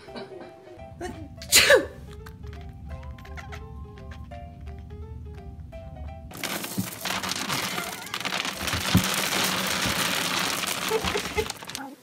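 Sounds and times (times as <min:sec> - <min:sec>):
dog scrabbling through debris: 0:06.3 - 0:12.0.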